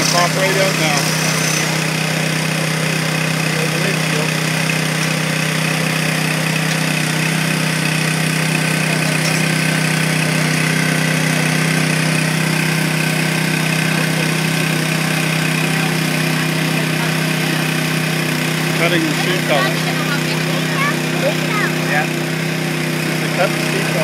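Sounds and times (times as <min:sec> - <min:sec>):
small petrol engine running: 0:00.0 - 0:24.0.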